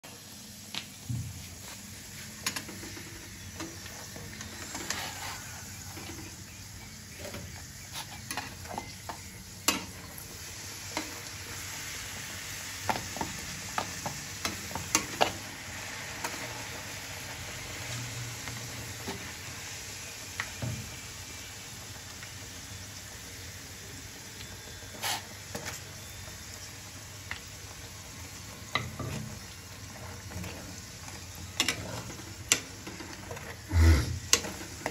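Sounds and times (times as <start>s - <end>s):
dough sizzling in hot oil: 0.0s - 34.9s
metal spatula scraping pan: 4.3s - 6.4s.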